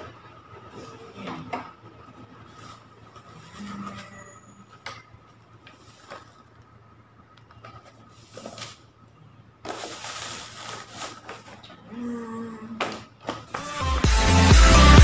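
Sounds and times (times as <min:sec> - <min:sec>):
plastic wrapping crinkling: 0:09.6 - 0:11.7.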